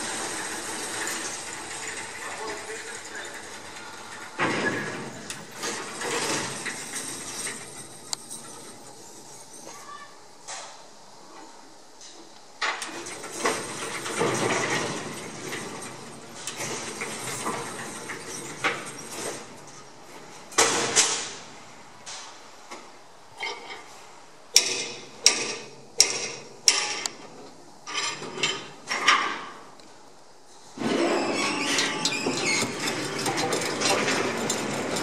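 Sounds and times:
metal clanking of rail gear: 0.0 - 10.0, 12.7 - 21.5, 30.8 - 35.0
sharp metallic knocks: 24.6 - 27.0.

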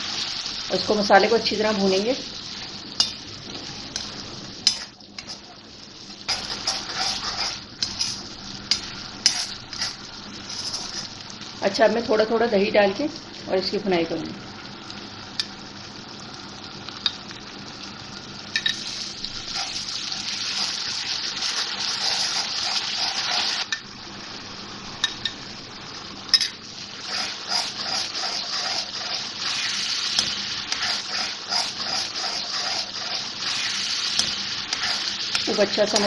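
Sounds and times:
onion masala sizzling in oil: 0.0 - 36.0
steel spoon scraping a pan: 4.0 - 5.4, 6.3 - 11.1, 21.6 - 23.6, 27.1 - 35.3.

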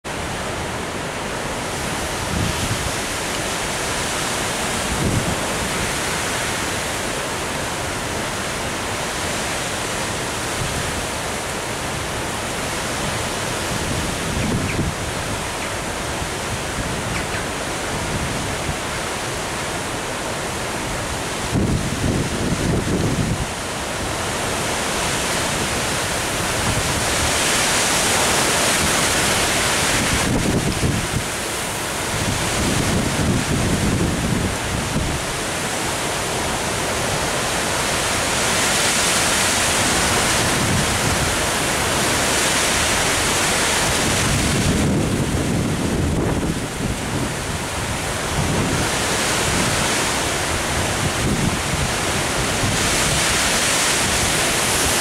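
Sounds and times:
storm wind rushing through trees: 0.0 - 55.0
wind buffeting microphone: 12.9 - 19.1, 21.4 - 23.7, 28.7 - 35.3, 39.7 - 55.0.

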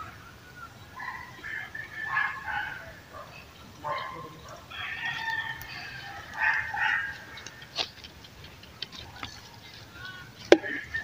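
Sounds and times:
rooster crowing: 1.0 - 3.3, 3.9 - 7.4, 10.5 - 11.0.

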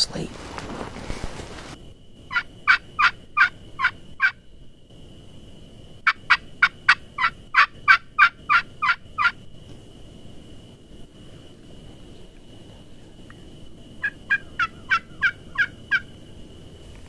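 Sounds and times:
turkey call hen yelps: 2.3 - 4.4, 6.3 - 9.4, 14.0 - 16.1.

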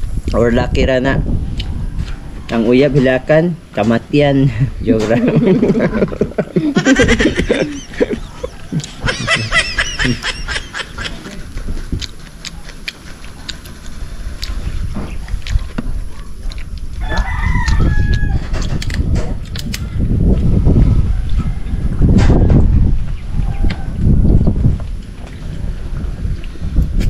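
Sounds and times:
birds calling: 1.5 - 16.4.

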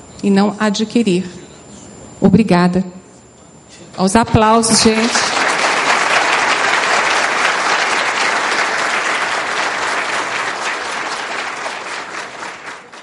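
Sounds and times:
audience applauding: 4.9 - 13.0.

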